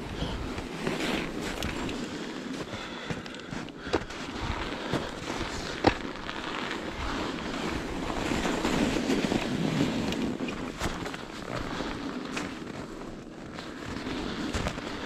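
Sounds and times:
bike tires crunching over snow: 0.0 - 15.0
wind rumbling on microphone: 0.0 - 15.0.

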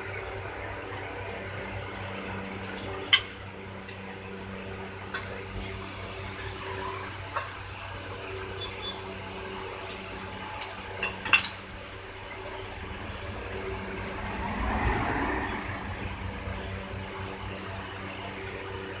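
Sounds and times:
low electrical hum: 0.0 - 19.0
rushing noise: 12.8 - 17.1.

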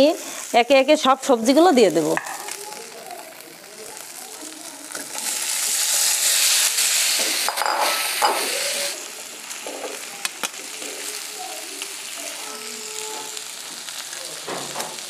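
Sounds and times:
vegetables sizzling in hot oil: 0.0 - 15.0
utensils clinking: 7.2 - 11.0.

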